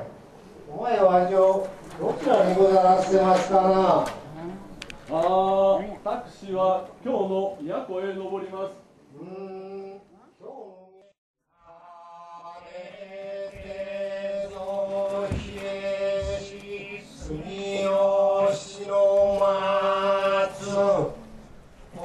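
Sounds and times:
men chanting: 11.7 - 21.3.

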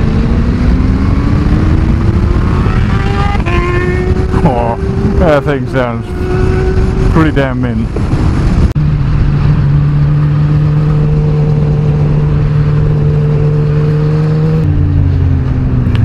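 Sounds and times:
motorcycle engine cruising: 0.0 - 16.0
wind rush: 0.0 - 16.0.

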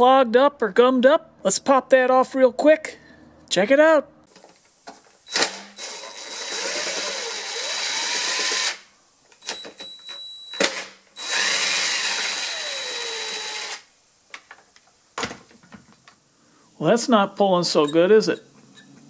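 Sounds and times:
cordless drill motor whirring: 5.3 - 8.8, 11.2 - 13.9
drill trigger clicks: 5.3 - 8.8, 10.6 - 13.8.

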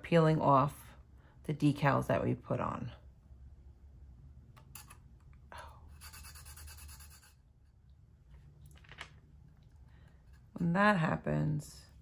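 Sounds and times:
faint scratching: 5.8 - 10.8.

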